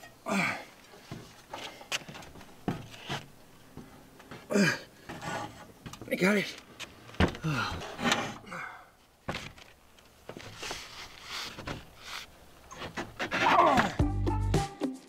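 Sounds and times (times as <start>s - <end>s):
shuffling footsteps: 0.8s - 7.7s, 9.0s - 14.0s
plywood knocking and scraping: 1.0s - 6.2s, 6.8s - 8.4s, 9.2s - 13.9s.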